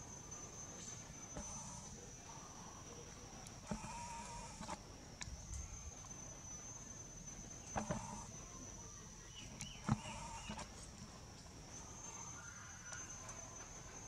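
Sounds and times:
faint chirps: 0.0 - 14.0
high-pitched insect drone: 0.0 - 14.0.

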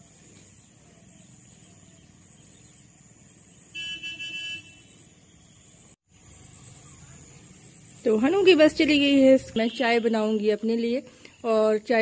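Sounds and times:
faint outdoor background: 0.0 - 12.0
bus horn tooting: 3.8 - 4.9.

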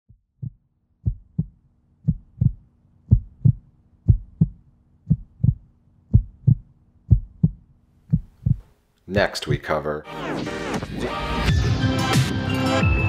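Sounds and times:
heartbeat thumps: 0.1 - 8.7.

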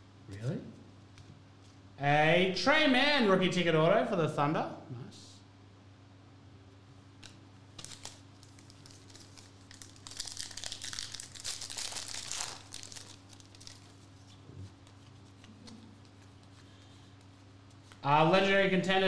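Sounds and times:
foil wrapper tearing and crinkling: 7.8 - 16.2.

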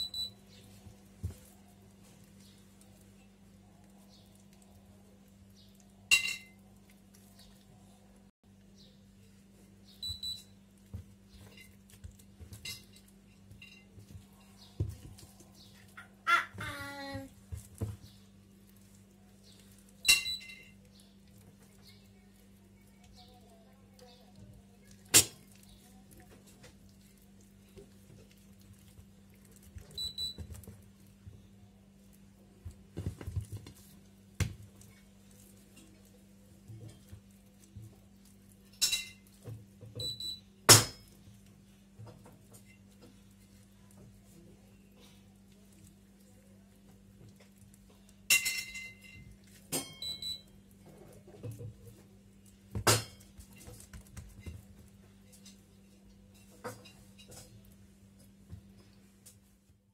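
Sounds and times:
hands squishing and slapping dough: 0.0 - 59.9
dishes clinking: 6.1 - 6.6, 48.3 - 50.3.

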